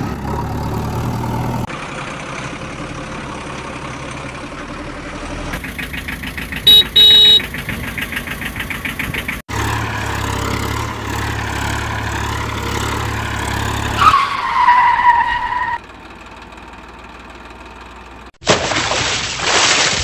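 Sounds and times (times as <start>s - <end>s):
vehicle engine running: 0.0s - 14.0s, 15.8s - 18.4s
loud tone: 6.7s - 7.5s
tyre skid squeal: 13.8s - 15.8s.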